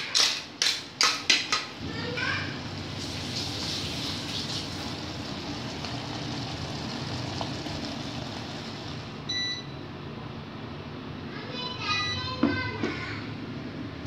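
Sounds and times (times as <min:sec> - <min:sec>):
cooker cooling fan humming: 0:00.0 - 0:14.0
short electronic beep: 0:09.3 - 0:09.8.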